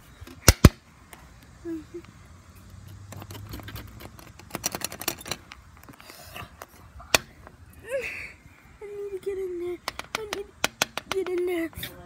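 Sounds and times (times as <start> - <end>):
sharp knocks: 9.8 - 11.5.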